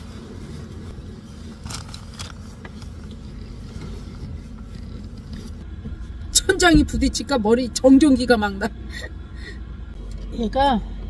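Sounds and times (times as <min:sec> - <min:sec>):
parking heater low drone: 0:00.0 - 0:11.0.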